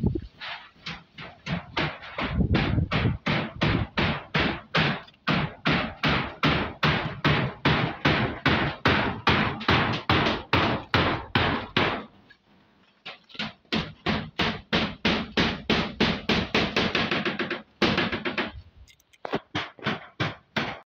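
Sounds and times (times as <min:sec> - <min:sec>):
hammer blows on a roof: 0:00.1 - 0:12.4, 0:13.0 - 0:20.9.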